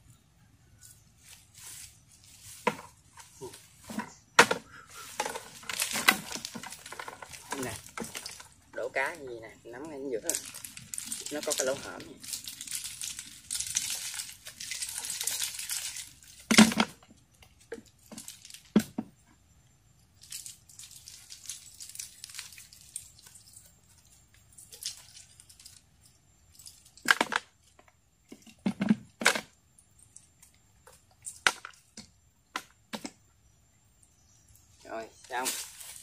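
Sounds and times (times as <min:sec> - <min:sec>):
hissing rustle: 0:00.8 - 0:08.6.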